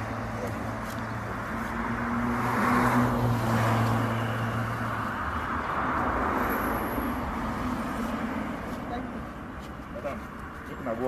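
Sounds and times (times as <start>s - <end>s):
vehicle passing close by: 0.0s - 9.4s.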